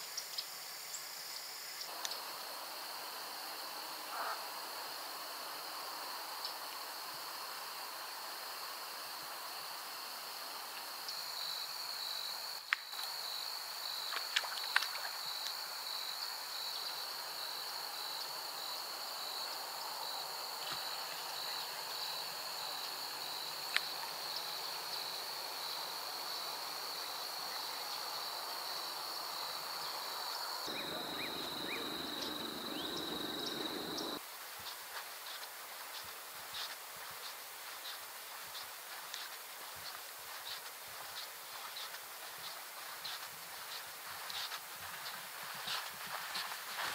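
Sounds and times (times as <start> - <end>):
insects trilling: 0.2 - 34.2.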